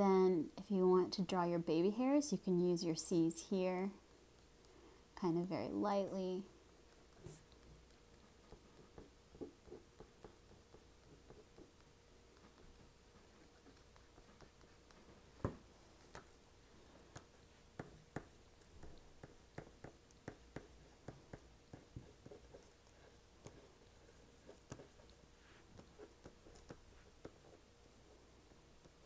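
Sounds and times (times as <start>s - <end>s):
crayon scratching on paper: 6.9s - 16.4s, 17.1s - 27.7s.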